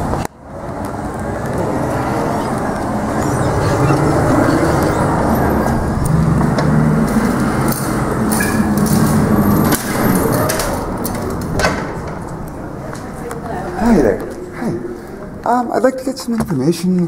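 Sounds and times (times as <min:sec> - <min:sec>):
loud low rumble: 0:00.9 - 0:12.8
glass doors clicking and knocking: 0:08.2 - 0:12.4.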